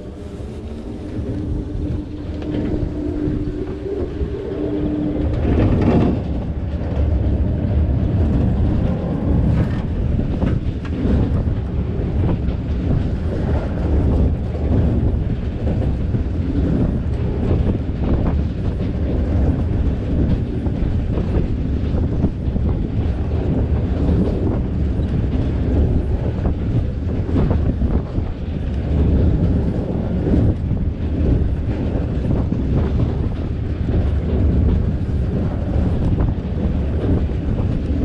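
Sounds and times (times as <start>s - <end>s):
steady hum: 0.0s - 20.3s
ride machinery rumbling: 0.0s - 38.0s.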